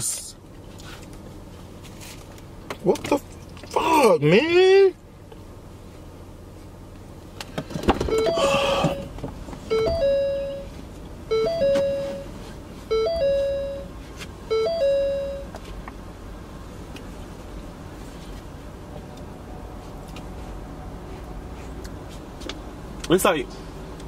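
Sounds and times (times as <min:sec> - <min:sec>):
car door opening clunk: 0:07.5 - 0:10.3, 0:11.3 - 0:12.2
car door warning chime: 0:08.1 - 0:10.7, 0:11.3 - 0:12.3, 0:12.9 - 0:13.9, 0:14.5 - 0:15.6.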